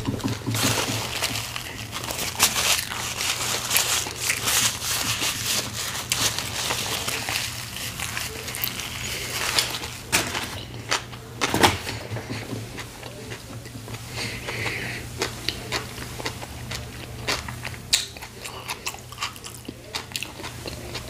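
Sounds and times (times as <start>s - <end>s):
paper bag crinkling: 0.0s - 11.9s
paper napkin rustling: 0.0s - 14.4s.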